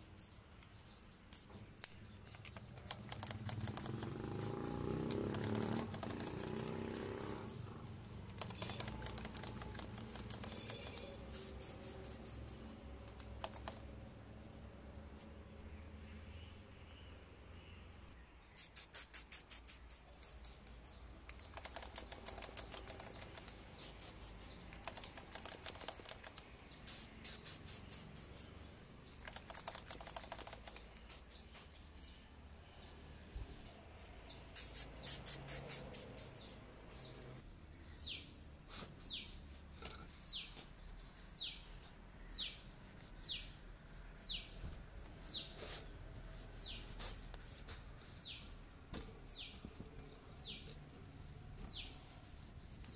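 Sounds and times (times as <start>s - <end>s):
rapid high ticking: 2.8s - 12.6s, 13.2s - 13.9s, 18.6s - 32.1s.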